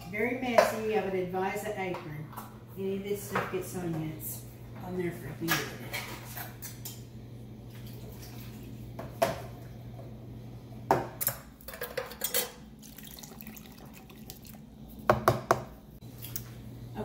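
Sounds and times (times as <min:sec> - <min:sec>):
fruit and juice pouring into bowl: 0:12.8 - 0:14.8.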